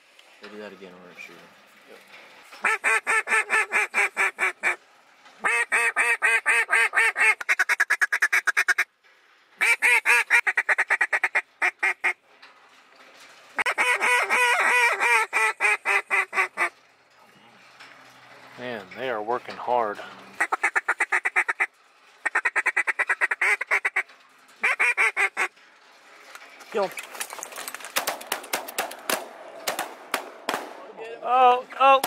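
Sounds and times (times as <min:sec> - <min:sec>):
goose call clucks: 0:02.6 - 0:04.8, 0:05.4 - 0:08.9, 0:09.6 - 0:12.2, 0:13.6 - 0:16.8, 0:20.4 - 0:25.6.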